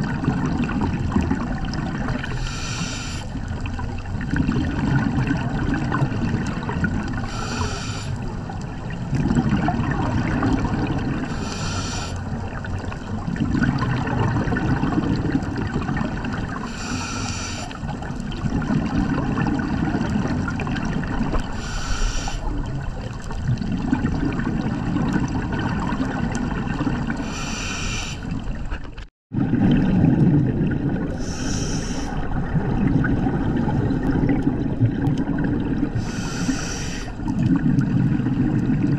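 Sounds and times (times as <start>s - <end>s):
diver inhaling through regulator: 2.2s - 3.5s, 7.2s - 8.3s, 11.2s - 12.4s, 16.6s - 17.9s, 21.5s - 22.6s, 27.1s - 28.4s, 31.1s - 32.3s, 35.9s - 37.3s
bubbling exhaust: 29.3s - 38.9s.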